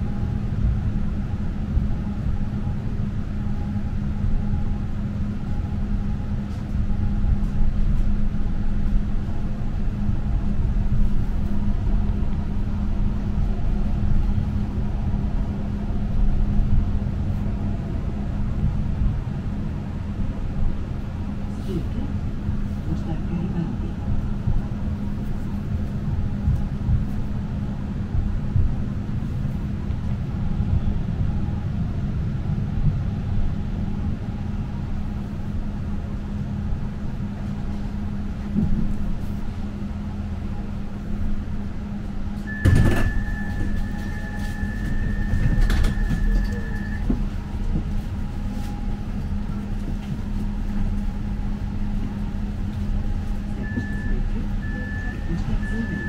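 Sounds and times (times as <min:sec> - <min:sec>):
tram humming and rumbling: 0:00.0 - 0:56.0
high electronic beep: 0:42.5 - 0:47.0.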